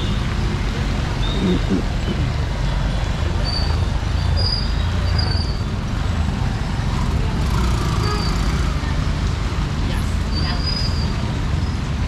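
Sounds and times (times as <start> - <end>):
traffic rumbling past: 0.0 - 12.0.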